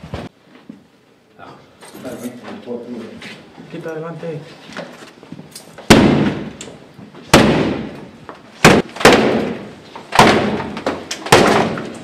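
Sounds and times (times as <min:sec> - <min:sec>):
battering ram hitting a door: 0:08.6 - 0:12.0.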